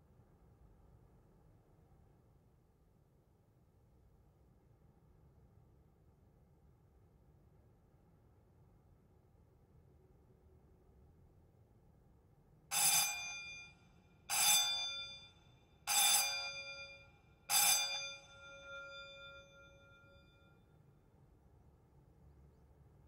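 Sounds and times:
metal gong bell ringing: 12.7 - 13.7, 14.3 - 20.4.

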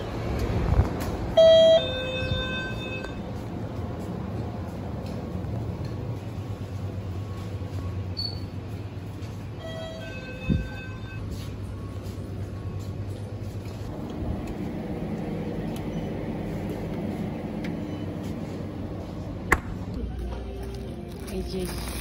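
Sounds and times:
refrigerator and air conditioning hum: 0.0 - 22.0.

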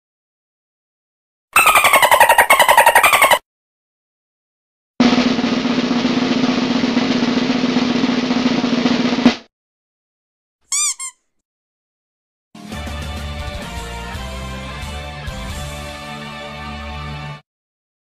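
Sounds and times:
snare drum roll: 5.0 - 9.5.

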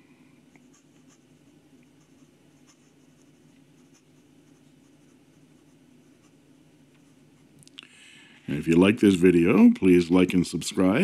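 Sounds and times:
low steady hum: 0.0 - 11.0
pen nib scratching on paper: 0.6 - 6.4.

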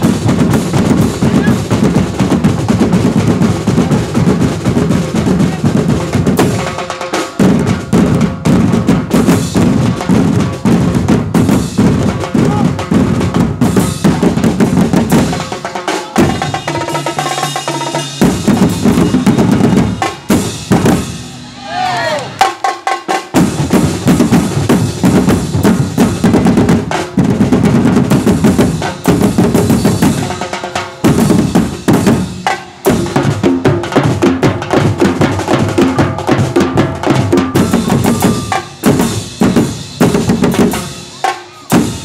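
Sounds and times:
percussion ensemble drumming: 0.0 - 42.0
ringing metal drum tones: 36.0 - 39.5.

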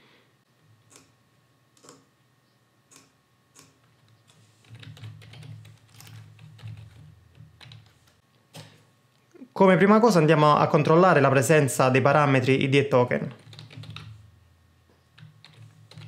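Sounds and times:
faint keyboard typing: 1.8 - 2.1, 2.9 - 8.8, 13.2 - 14.3, 15.0 - 16.0.

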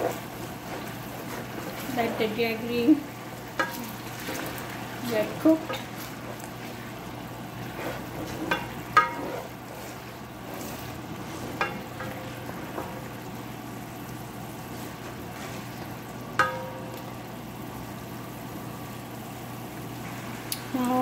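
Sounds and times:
sauce sizzling in a frying pan: 0.0 - 21.0
spatula knocking on pan: 8.4 - 9.4, 11.6 - 13.0, 16.4 - 17.0.

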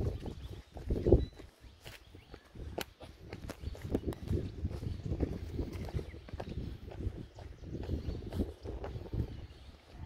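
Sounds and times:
footsteps on dirt and stone path: 0.0 - 10.0.

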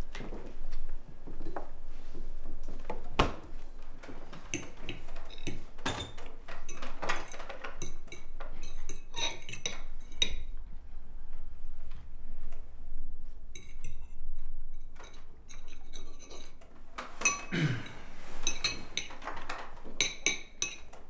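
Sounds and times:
cutlery clinking on plates: 7.8 - 10.4, 17.2 - 21.0.

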